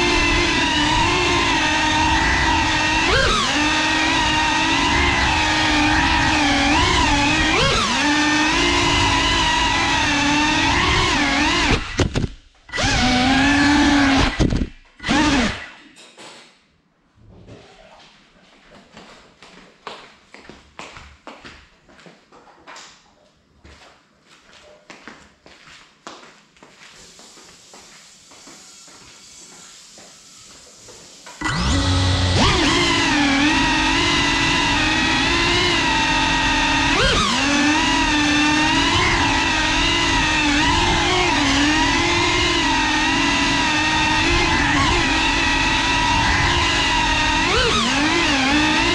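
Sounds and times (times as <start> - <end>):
drone motors whining: 0.0 - 15.8, 27.7 - 48.9.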